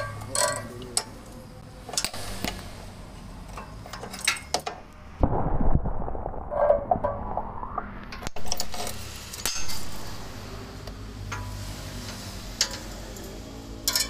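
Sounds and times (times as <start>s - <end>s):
loud low rumble: 5.2s - 8.2s.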